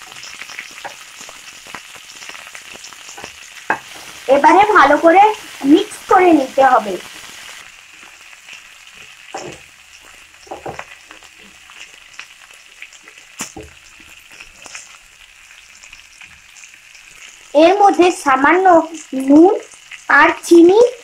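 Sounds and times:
vegetables sizzling in oil: 0.0 - 21.0
spatula scraping and knocking pan: 3.1 - 4.2, 9.0 - 11.6.

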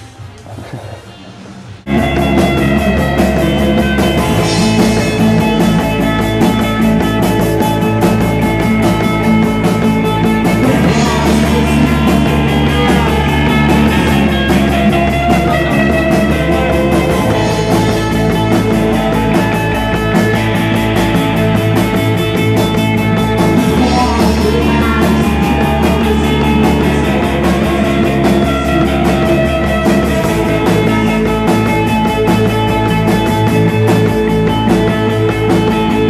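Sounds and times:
live rock band playing: 1.8 - 36.0.

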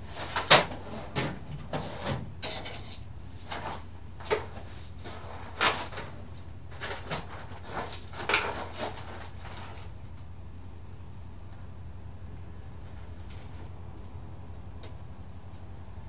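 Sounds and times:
steady low hum: 0.0 - 16.0
tools and parts clinking: 2.4 - 3.1.

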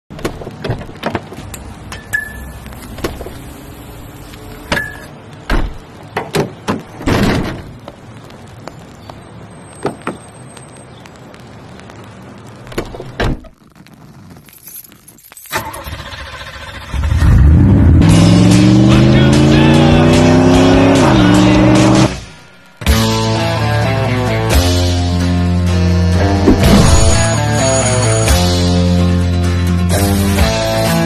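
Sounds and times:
car keys jangling: 14.4 - 15.9.

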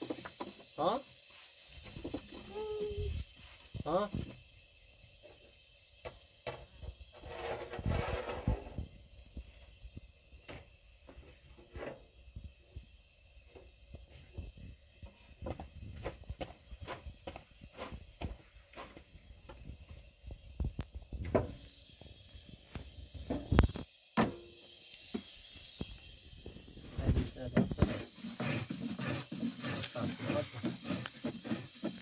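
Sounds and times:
rustling scrape: 7.1 - 8.8, 27.0 - 32.0.

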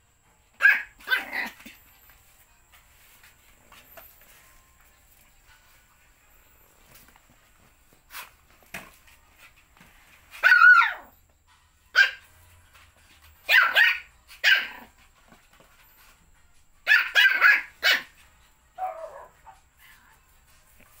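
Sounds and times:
puppy yapping: 0.6 - 1.7, 10.4 - 11.2, 12.0 - 12.2, 13.5 - 14.9, 16.9 - 18.1, 18.8 - 19.6.

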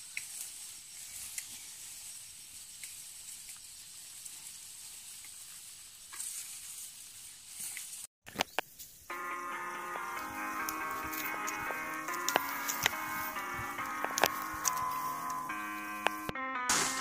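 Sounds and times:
steady high hiss: 8.7 - 17.0
thin high whine: 9.1 - 17.0.

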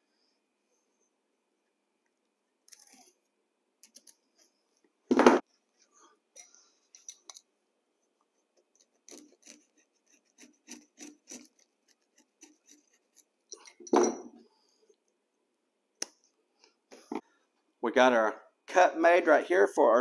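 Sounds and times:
knife cutting carpet backing: 8.8 - 13.4.

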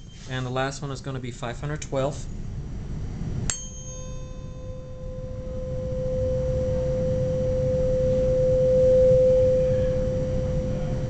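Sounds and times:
tuning fork ringing: 0.0 - 0.5, 3.5 - 11.0.

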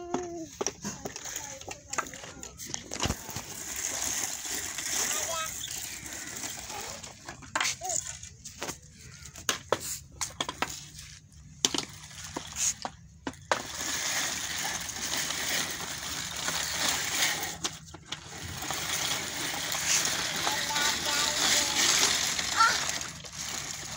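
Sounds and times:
plastic baby walker knocking: 0.0 - 3.4
plastic wheels rolling and rattling: 0.0 - 23.9.

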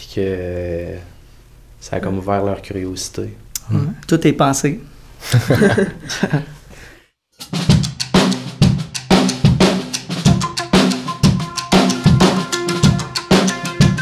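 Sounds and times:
drum kit rock beat: 7.4 - 14.0.

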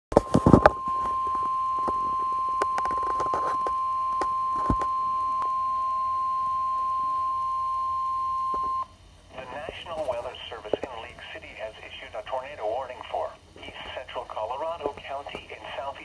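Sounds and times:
steady high alarm tone: 0.2 - 8.9.

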